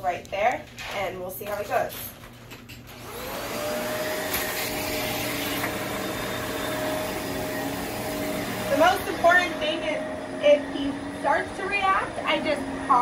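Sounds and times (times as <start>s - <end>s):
vacuum cleaner motor running: 2.9s - 13.0s.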